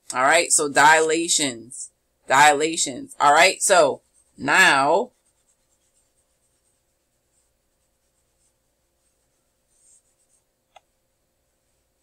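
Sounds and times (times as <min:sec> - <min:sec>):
wipe rubbing on whiteboard: 0:05.1 - 0:10.5.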